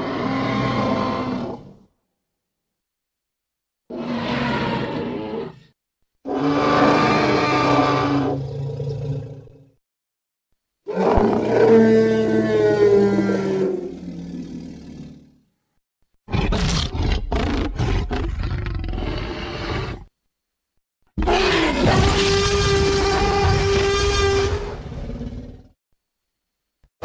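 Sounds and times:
deep dinosaur roars: 0:00.0 - 0:01.8, 0:06.3 - 0:09.7, 0:10.9 - 0:15.3, 0:21.2 - 0:25.8.

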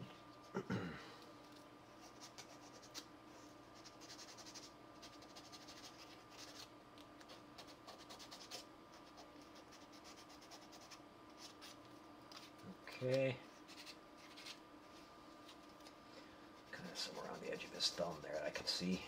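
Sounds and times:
scratchy hand-sanding: 0:03.8 - 0:06.6, 0:16.7 - 0:18.8.

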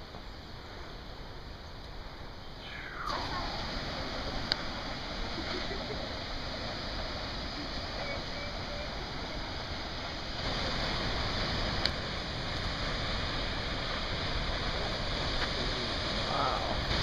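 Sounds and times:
waterfall rushing: 0:02.6 - 0:17.0.

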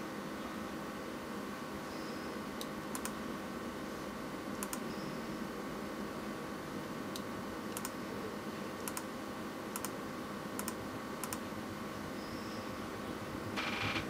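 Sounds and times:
faint double clicks: 0:02.6 - 0:03.2, 0:04.6 - 0:04.8.

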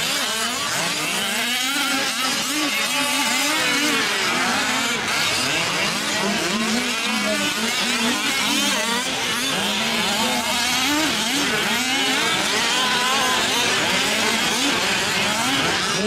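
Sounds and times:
small engines revving: 0:00.0 - 0:16.0.

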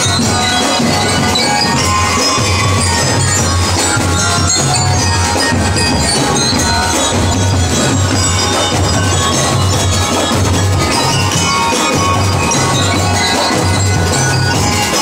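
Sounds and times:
drums beating: 0:00.0 - 0:15.0
marching band playing: 0:00.0 - 0:15.0.

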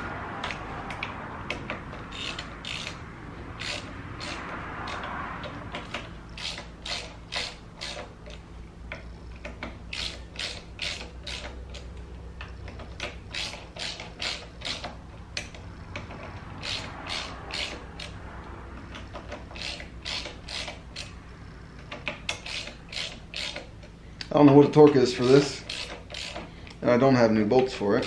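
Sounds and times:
ratchet wrench clicking: 0:00.0 - 0:26.9, 0:27.6 - 0:28.0.

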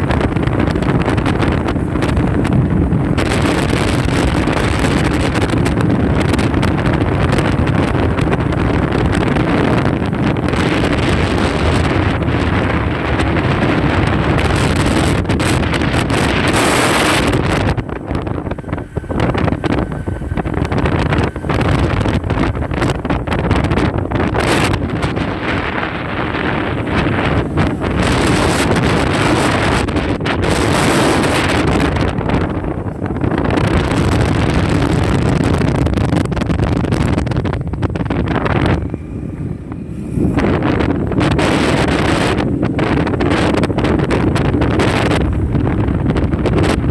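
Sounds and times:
vehicle travel noise: 0:00.0 - 0:46.9
wind buffeting microphone: 0:00.0 - 0:46.9.

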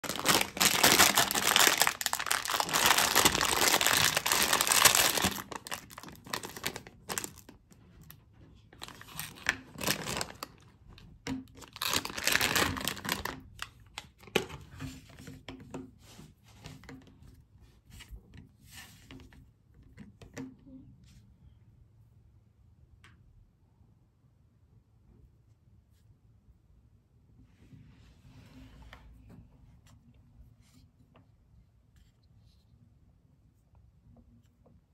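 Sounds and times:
bag tearing open: 0:00.0 - 0:07.4, 0:08.9 - 0:10.4, 0:11.7 - 0:13.4
plastic candy bag crinkling: 0:00.0 - 0:07.6, 0:08.8 - 0:10.7, 0:11.5 - 0:14.4.

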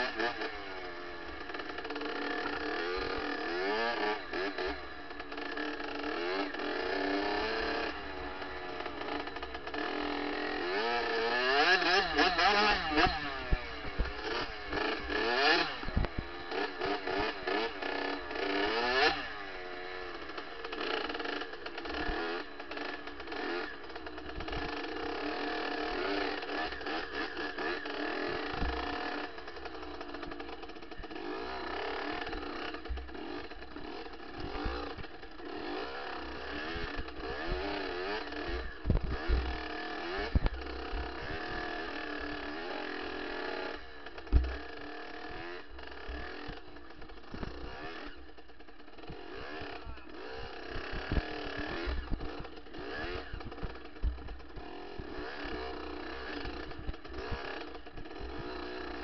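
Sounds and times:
dirt bike engine revving: 0:00.0 - 0:59.0
bike knocking over bumps: 0:44.2 - 0:44.6.

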